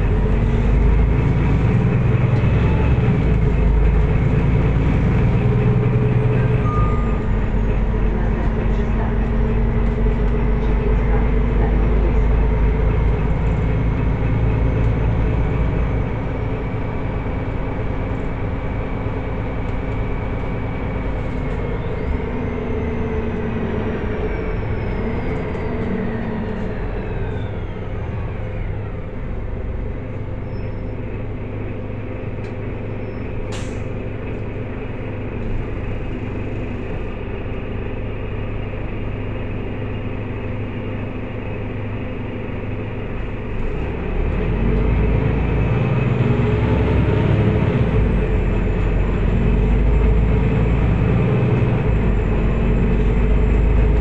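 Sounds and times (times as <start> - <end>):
bus engine low rumble: 0.0 - 54.0
drivetrain whine: 0.0 - 54.0.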